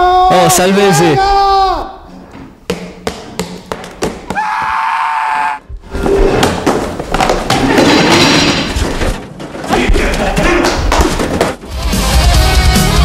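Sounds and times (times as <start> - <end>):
knocks and thumps of props: 2.3 - 4.5, 5.9 - 11.8.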